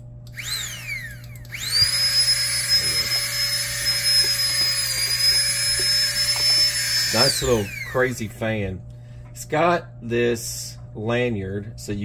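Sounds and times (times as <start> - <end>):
electric air pump whining: 0.2 - 8.4.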